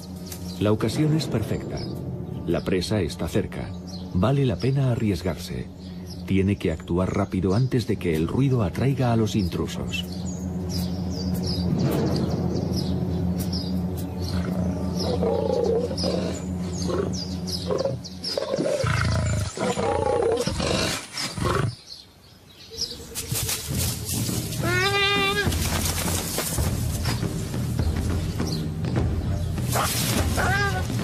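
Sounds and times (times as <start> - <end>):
birds chirping faintly: 0.0 - 31.0
big cat growling and roaring: 14.2 - 21.8.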